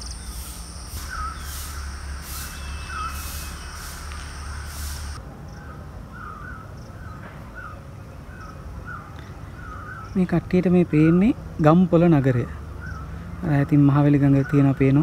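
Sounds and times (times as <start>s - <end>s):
insects buzzing in pulses: 0.0s - 5.2s
bird calling in wavering notes: 1.0s - 4.7s.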